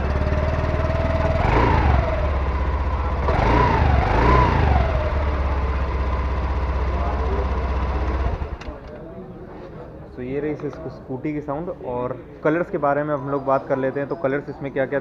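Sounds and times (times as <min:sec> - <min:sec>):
scooter throttle blips: 0:00.0 - 0:08.8
scooter engine idling: 0:00.0 - 0:09.0.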